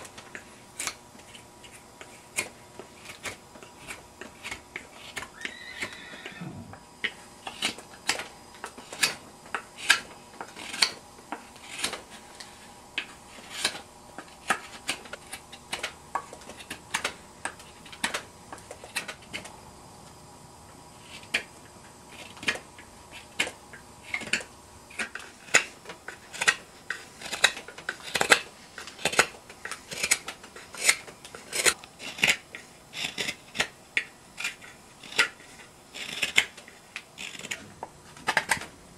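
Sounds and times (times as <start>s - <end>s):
knife slicing wood shavings: 9.8s - 12.5s.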